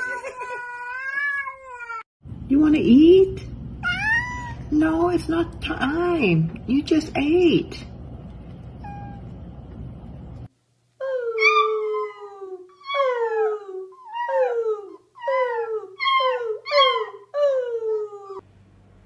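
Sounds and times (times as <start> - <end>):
puppy howling: 11.0 - 18.4.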